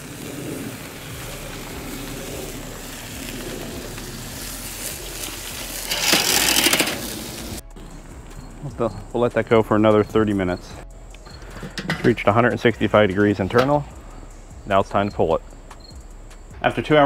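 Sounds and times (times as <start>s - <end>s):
metal spatulas scraping grill grate: 1.6s - 7.6s, 11.2s - 12.4s.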